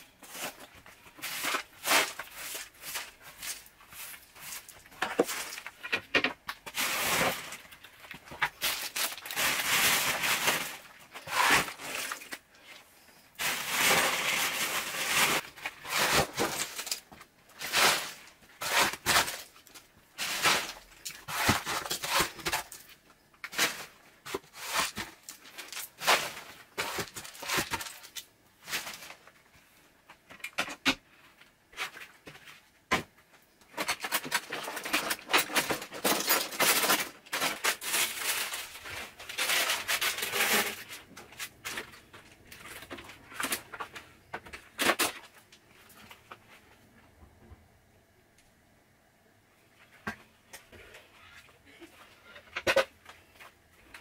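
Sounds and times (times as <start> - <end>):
plastic wrappers crinkling: 0.0 - 29.4, 33.7 - 46.4.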